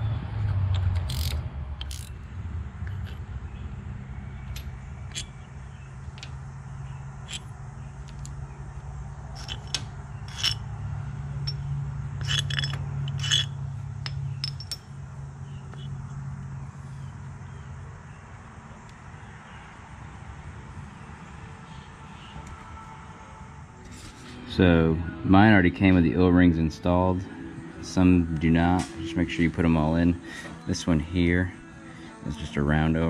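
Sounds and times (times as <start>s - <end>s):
steady low hum: 0.0s - 33.0s
steel bolts clinking and scraping: 0.7s - 2.2s, 2.8s - 3.3s, 4.4s - 6.4s, 7.2s - 8.4s, 9.3s - 10.8s, 11.4s - 15.1s.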